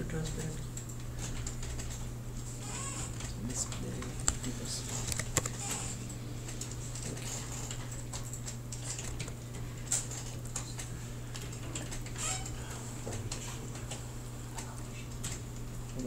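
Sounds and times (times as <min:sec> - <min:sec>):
mouse and keyboard clicks: 0:05.0 - 0:05.6.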